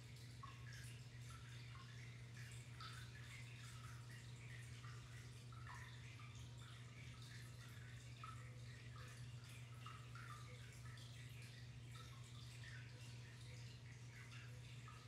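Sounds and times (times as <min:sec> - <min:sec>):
steady low hum: 0:00.0 - 0:15.0
water trickling and dripping: 0:00.0 - 0:15.0.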